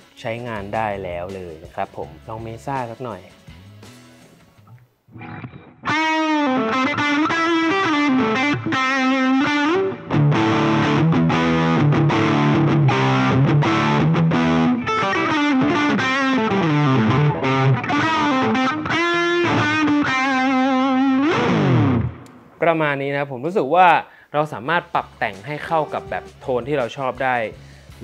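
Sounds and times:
distorted electric guitar lead: 5.1s - 22.6s, 25.4s - 26.4s.

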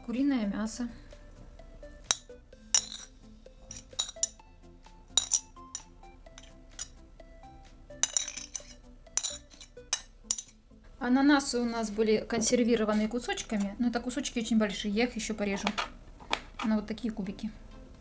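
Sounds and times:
metal spoon clinking on dishes: 2.1s - 4.4s, 5.1s - 7.0s, 8.0s - 10.6s.

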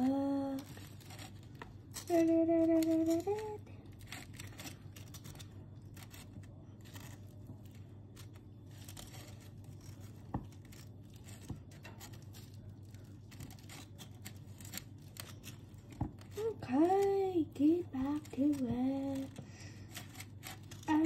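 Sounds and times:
low steady hum: 0.0s - 21.0s
knife scraping toast: 4.0s - 16.4s, 17.8s - 21.0s.

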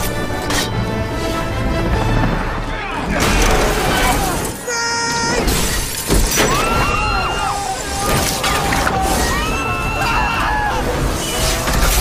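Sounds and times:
film score music: 0.0s - 12.0s
people screaming: 2.8s - 11.8s.

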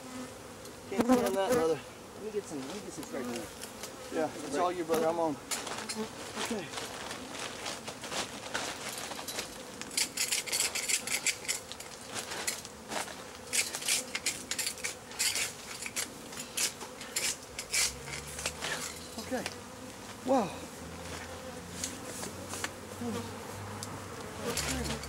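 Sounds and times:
bees buzzing: 0.0s - 25.0s
tool scraping metal manhole: 10.0s - 12.6s, 13.5s - 19.2s.

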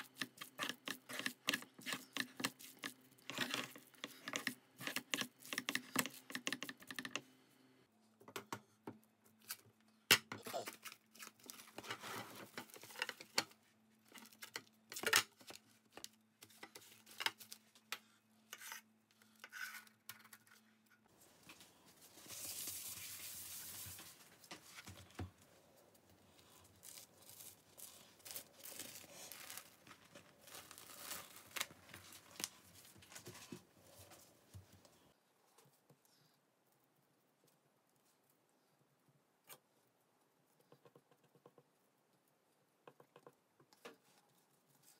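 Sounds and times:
papery tearing rustle: 26.4s - 32.6s.

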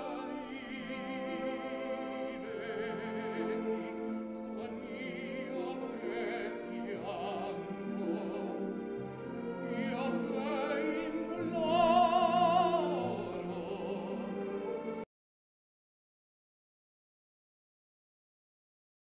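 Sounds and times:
operatic singing with vibrato: 0.0s - 15.0s.

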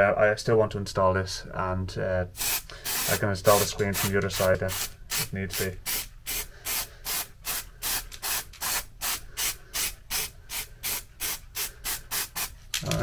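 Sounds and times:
aerosol spray hissing: 2.4s - 12.6s.

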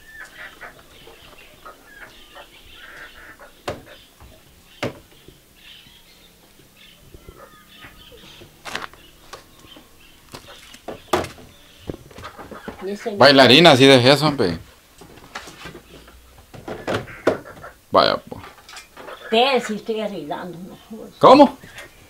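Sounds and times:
chickens clucking: 0.0s - 22.0s
knocks of produce being handled: 3.6s - 5.4s, 10.3s - 12.8s.

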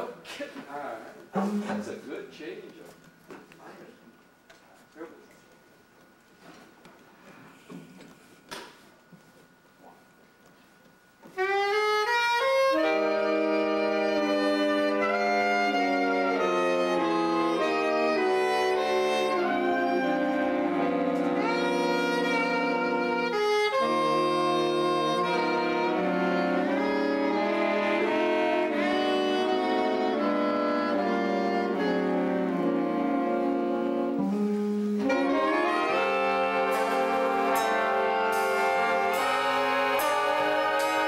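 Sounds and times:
big band saxophones and brass: 11.4s - 41.0s
sharp percussion strikes: 35.9s - 41.0s.

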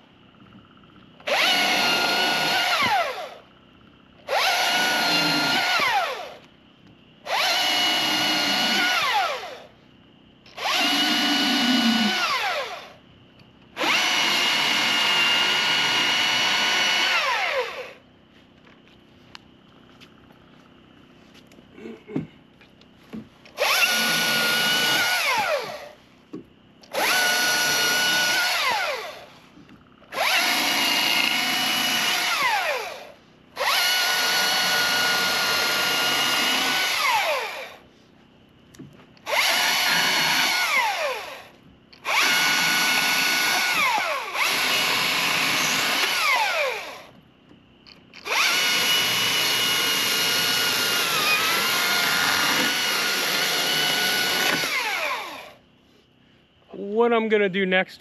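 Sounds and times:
electric chainsaw whining: 0.7s - 6.5s, 7.2s - 9.7s, 10.4s - 13.0s, 13.7s - 18.0s, 23.5s - 26.0s, 26.8s - 29.4s, 30.0s - 37.8s, 39.2s - 47.2s, 48.1s - 55.6s.

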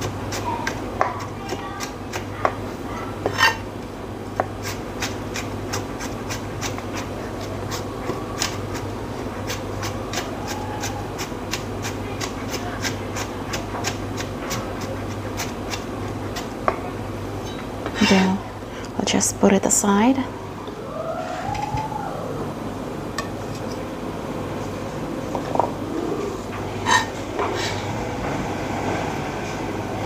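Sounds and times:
knife chopping on cutting board: 11.2s - 16.8s.

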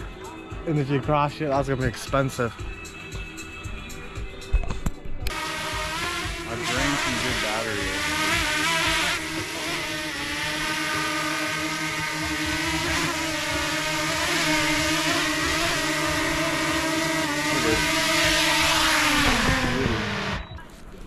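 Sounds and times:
drone propellers whining: 5.3s - 20.6s.

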